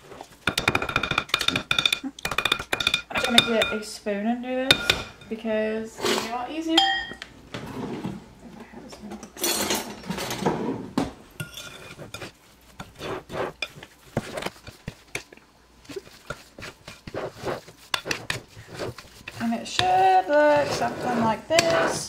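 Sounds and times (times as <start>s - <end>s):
spoon clinking on ceramic bowl: 6.8s - 7.2s
spoon scraping thick batter: 11.4s - 22.0s.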